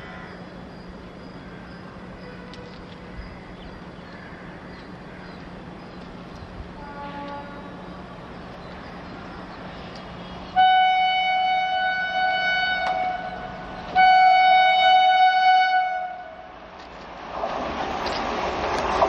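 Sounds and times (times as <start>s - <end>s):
approaching train rumble: 0.0s - 19.0s
locomotive horn blasts: 6.8s - 7.8s, 10.5s - 16.5s.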